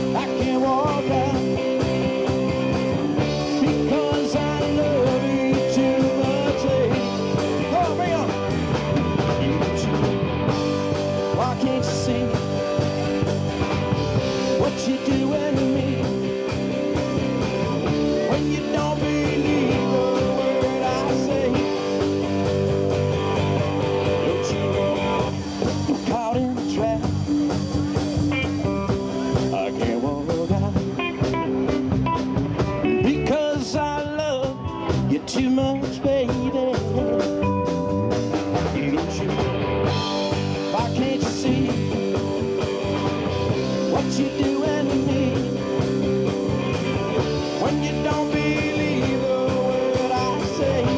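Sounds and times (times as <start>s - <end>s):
person singing: 0.0s - 1.7s, 3.2s - 10.1s, 11.2s - 12.9s, 14.4s - 16.5s, 17.8s - 22.2s, 32.8s - 37.2s, 38.5s - 39.6s, 40.5s - 42.4s, 43.6s - 45.9s, 47.4s - 50.9s
live rock band playing: 0.0s - 50.9s.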